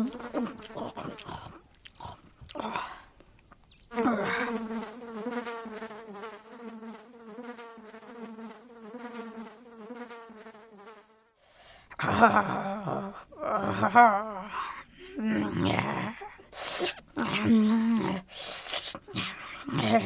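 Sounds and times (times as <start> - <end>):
fly buzzing: 0.0 - 2.6, 3.6 - 11.5.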